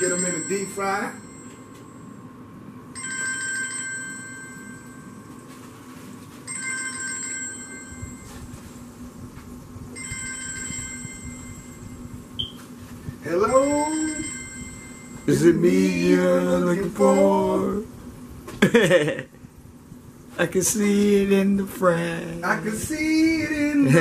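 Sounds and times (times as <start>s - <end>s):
electronic phone ringtone: 2.9s - 8.5s, 9.9s - 12.5s, 13.5s - 16.0s.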